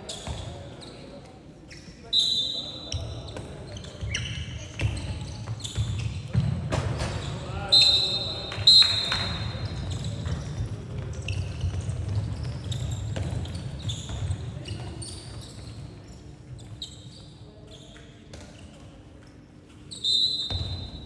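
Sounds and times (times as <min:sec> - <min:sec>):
shoes squeaking on floor: 0:00.0 - 0:19.0, 0:19.7 - 0:21.0
ball bouncing: 0:09.8 - 0:14.4.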